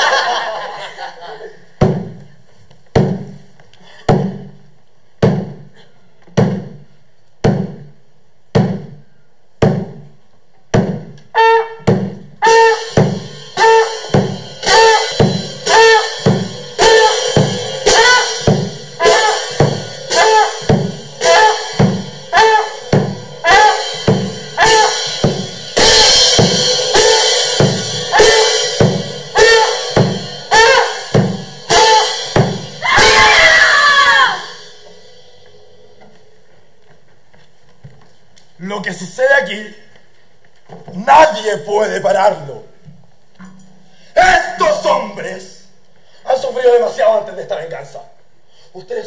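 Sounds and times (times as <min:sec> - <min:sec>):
hand-struck frame drum: 0:01.8 - 0:02.2, 0:09.6 - 0:10.1.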